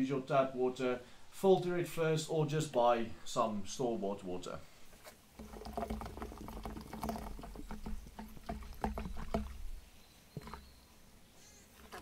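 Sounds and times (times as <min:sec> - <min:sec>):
water pouring into plastic bucket: 0:05.3 - 0:09.8.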